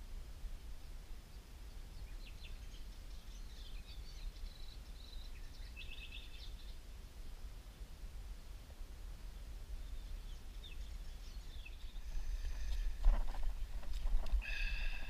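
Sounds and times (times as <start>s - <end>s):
songbirds chirping: 0.0s - 15.0s
steady low rumble: 6.8s - 15.0s
bird trill: 14.4s - 15.0s.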